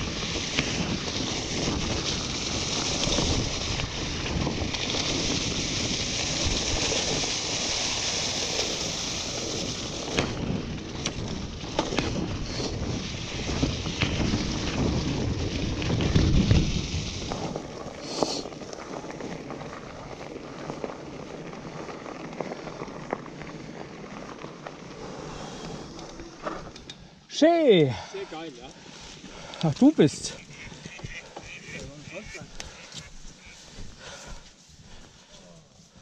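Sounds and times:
wind buffeting microphone: 0.0s - 18.7s, 28.6s - 35.3s
bike rattling: 0.0s - 36.0s
bike tyre rumble on dirt trail: 0.0s - 36.0s.

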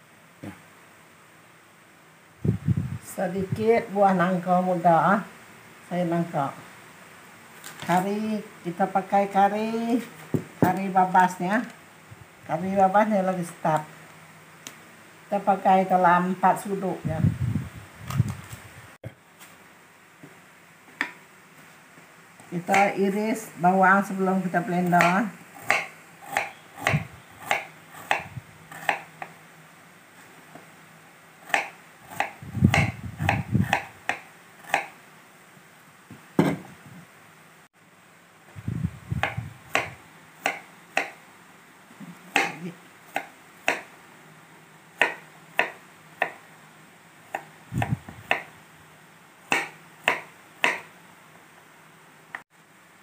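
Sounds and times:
knife knocking on wooden cutting board: 36.4s - 36.7s.

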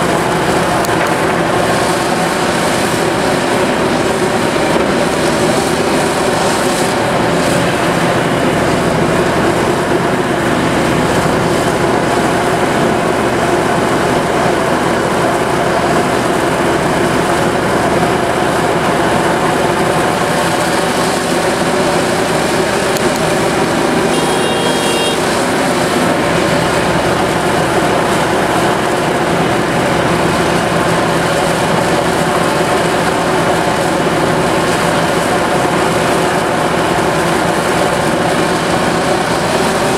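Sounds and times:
heavy diesel machinery running: 0.0s - 39.9s
brief high-pitched tone: 24.1s - 25.3s.

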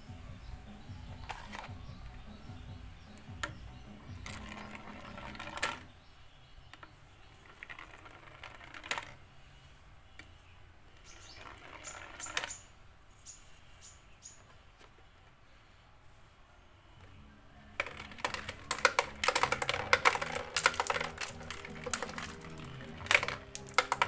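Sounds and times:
balls clacking together: 0.6s - 6.0s, 6.6s - 10.4s, 11.0s - 12.7s, 17.0s - 24.0s
balls rolling down plastic track: 1.0s - 6.0s, 6.7s - 9.4s, 11.0s - 12.6s, 17.6s - 24.0s.

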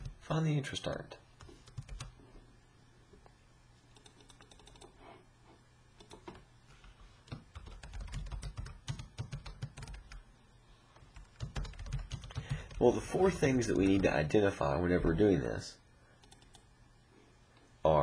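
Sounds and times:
typing on computer keyboard: 1.4s - 2.1s, 4.0s - 5.0s, 6.0s - 6.3s, 7.3s - 10.2s, 11.0s - 12.8s, 16.2s - 16.6s.

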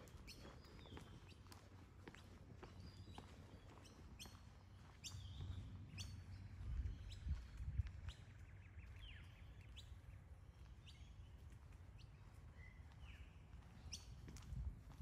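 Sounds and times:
birds chirping: 0.0s - 14.6s
faint low rumble: 4.8s - 15.0s.

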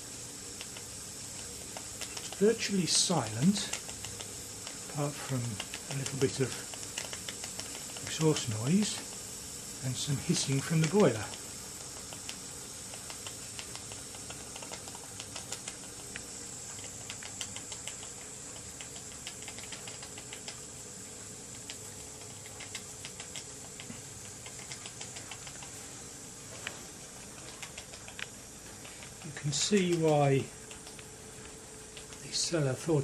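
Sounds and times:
boiler hiss: 0.0s - 33.0s
model steam engine clicking: 0.6s - 9.2s, 10.0s - 11.4s, 28.9s - 30.2s.

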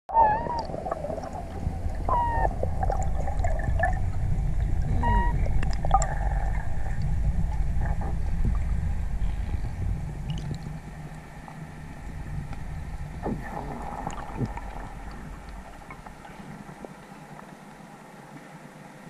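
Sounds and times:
short squeaky tones: 0.1s - 0.7s, 2.1s - 2.6s, 4.9s - 5.4s
underwater rumble of water: 0.1s - 19.0s
sharp underwater clicks: 10.2s - 11.2s.

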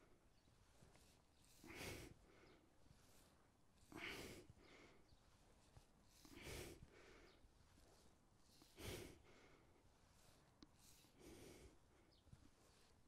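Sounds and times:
man breathing out: 1.4s - 2.4s, 3.0s - 5.0s, 6.1s - 7.3s, 8.5s - 10.3s.

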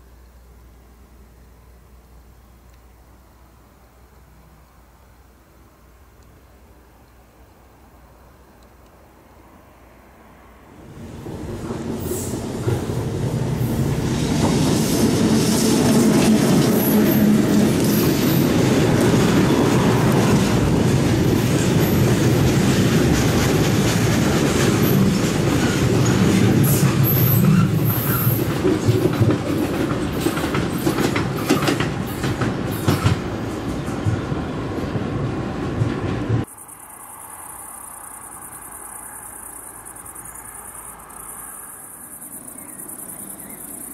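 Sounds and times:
train wagons rumbling past: 10.5s - 36.5s
high wheel squeals: 25.6s - 28.5s.

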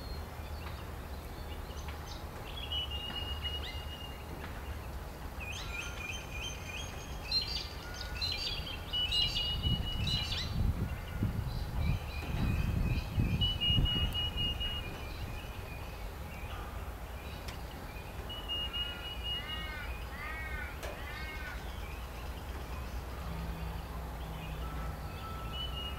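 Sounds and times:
birds calling high notes: 5.6s - 25.9s.

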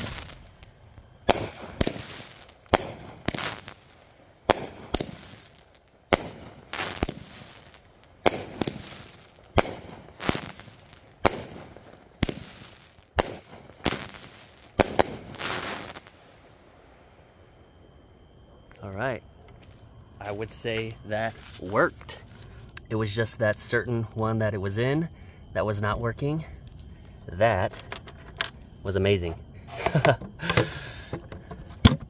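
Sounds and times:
firework bangs with hiss: 0.0s - 16.5s.

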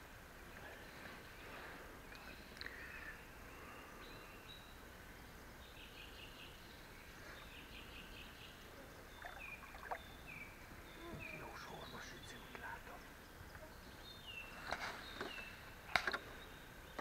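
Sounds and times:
small birds chirping: 0.4s - 17.0s.

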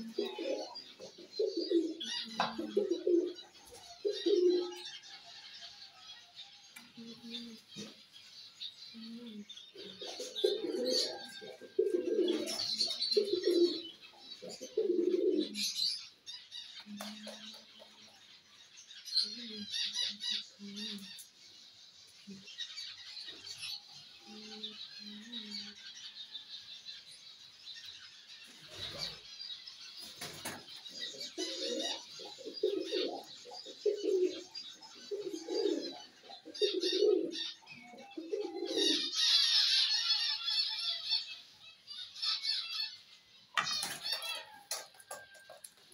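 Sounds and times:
pigeons cooing: 0.0s - 5.0s, 7.0s - 8.0s, 8.8s - 16.0s, 19.1s - 21.2s, 23.4s - 25.8s, 30.1s - 40.2s
wings flapping and rustling: 30.0s - 30.8s, 43.6s - 45.9s.

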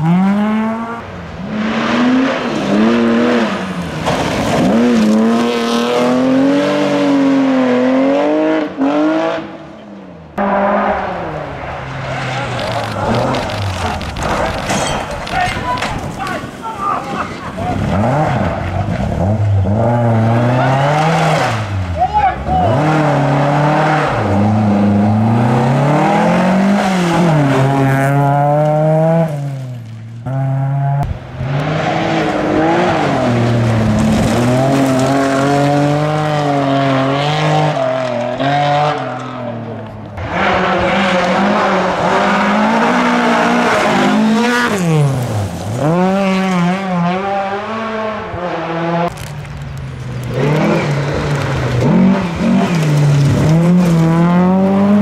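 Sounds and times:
rally car engines revving: 0.0s - 55.0s
tyres scrabbling on gravel: 12.0s - 19.2s, 33.2s - 36.0s, 49.1s - 55.0s.

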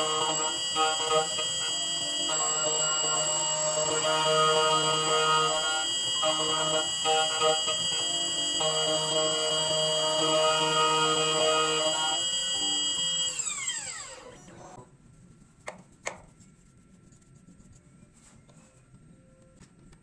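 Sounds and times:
key cutting machine whining: 0.0s - 14.8s.

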